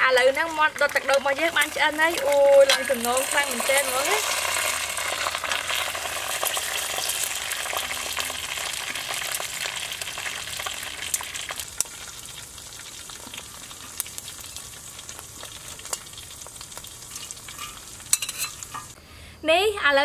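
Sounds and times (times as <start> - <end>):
chicken crackling and sizzling: 0.0 - 19.0
metal utensils clicking: 0.2 - 4.2, 17.1 - 19.0.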